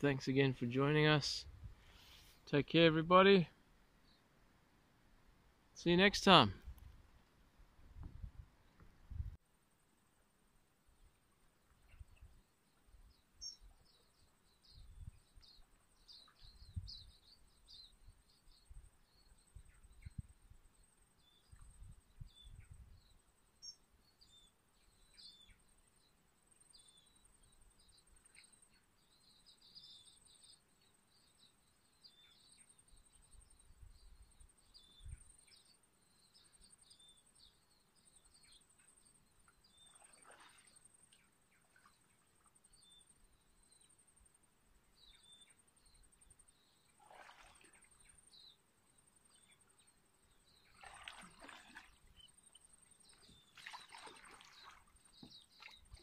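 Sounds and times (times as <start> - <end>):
paddle swishing in water: 39.8 - 40.9, 47.0 - 47.9, 50.6 - 52.3, 53.0 - 56.0
bird chirps: 45.0 - 47.0.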